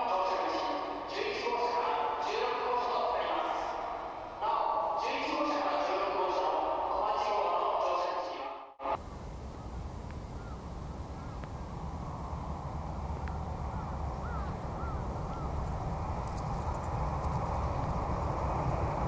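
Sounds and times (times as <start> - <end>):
low outdoor rumble: 8.8 - 19.0
crows cawing: 10.4 - 11.7, 13.2 - 15.7.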